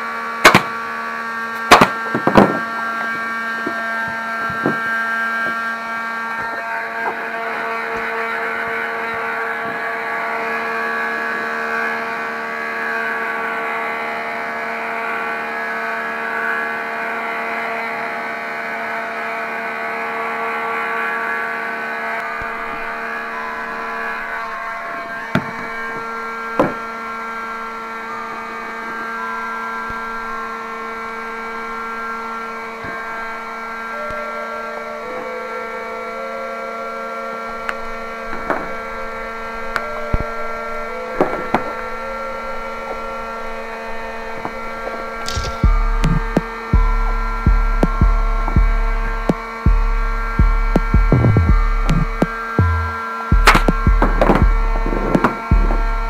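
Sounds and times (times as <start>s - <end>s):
heat gun fan whirring: 0.0s - 56.0s
short sharp clicks: 45.2s - 46.5s.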